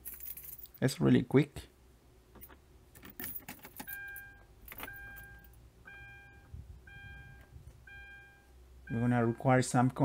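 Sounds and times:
keys jingling: 0.0s - 0.8s, 2.4s - 5.5s
dashboard warning chime: 3.8s - 9.7s.

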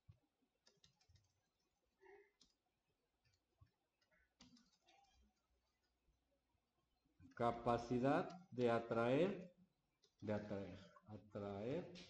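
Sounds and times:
keyboard typing clicks: 0.6s - 1.4s.

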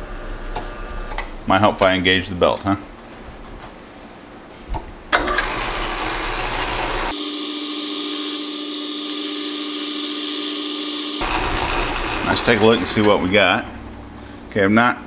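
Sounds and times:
metal lathe running: 5.2s - 13.0s
high bright lathe whir: 5.3s - 12.8s.

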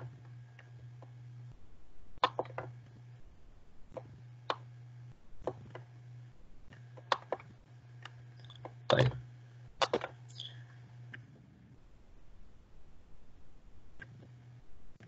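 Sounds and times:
low steady hum: 0.0s - 15.0s
computer mouse clicks: 2.2s - 2.7s, 6.7s - 9.2s
keyboard taps: 9.8s - 10.1s.

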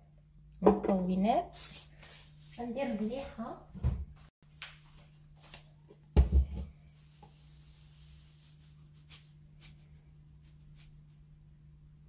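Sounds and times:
faint rubbing: 6.9s - 11.3s.

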